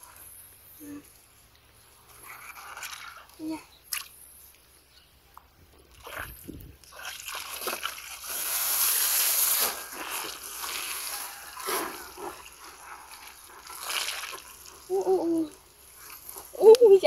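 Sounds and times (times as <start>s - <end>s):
muddy water splashing: 1.1s - 4.7s, 5.8s - 17.0s.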